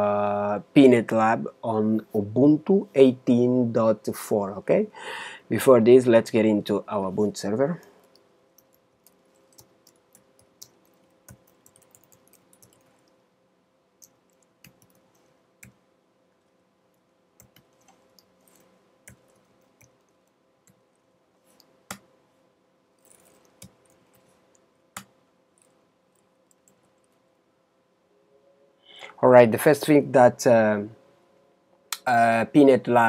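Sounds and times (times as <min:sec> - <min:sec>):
faint steady hum: 0:00.0 - 0:33.0
keyboard typing clicks: 0:08.0 - 0:13.2, 0:14.0 - 0:15.8, 0:17.4 - 0:20.8, 0:23.0 - 0:27.2.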